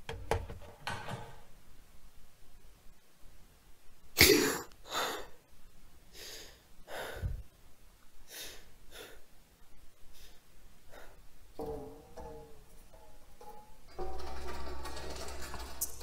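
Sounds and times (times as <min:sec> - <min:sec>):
person gasping: 0:04.8 - 0:05.4, 0:06.2 - 0:07.4, 0:10.2 - 0:11.2
heavy breathing: 0:06.1 - 0:07.5, 0:10.1 - 0:11.3.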